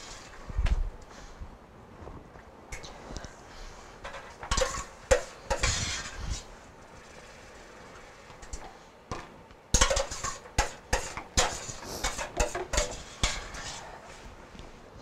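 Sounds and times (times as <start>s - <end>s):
metal spoon scraping a pot: 4.0s - 6.5s, 9.8s - 14.2s.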